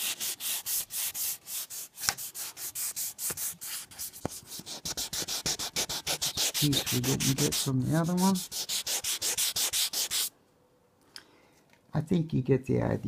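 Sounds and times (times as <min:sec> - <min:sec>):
sandpaper rubbing on metal: 0:00.0 - 0:10.3.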